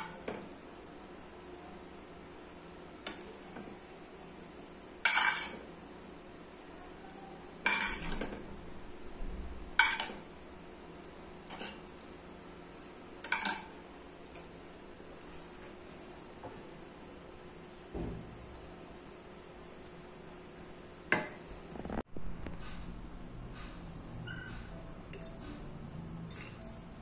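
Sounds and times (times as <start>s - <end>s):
utensils clinking on pots: 7.6s - 8.4s, 9.8s - 10.2s, 13.2s - 13.7s.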